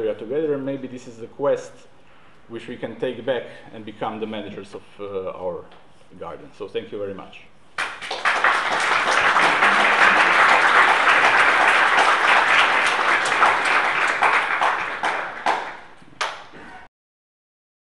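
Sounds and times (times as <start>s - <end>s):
audience applauding: 7.8s - 16.5s.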